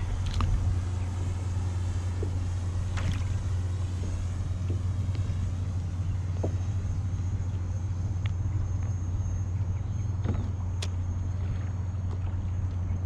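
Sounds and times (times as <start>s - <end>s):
wind buffeting microphone: 0.0s - 9.3s
water slaps on plastic hull: 2.1s - 5.3s.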